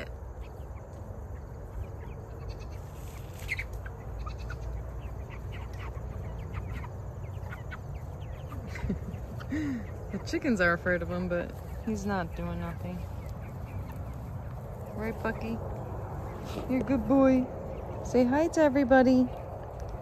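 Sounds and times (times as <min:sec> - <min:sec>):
chicks peeping: 0:00.0 - 0:20.0
low rumble: 0:07.0 - 0:20.0.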